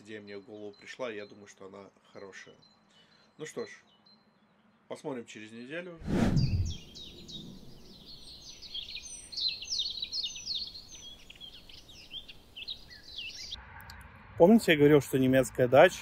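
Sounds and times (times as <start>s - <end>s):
birds chirping: 0.0s - 5.2s, 6.1s - 13.6s
whoosh: 6.0s - 8.0s.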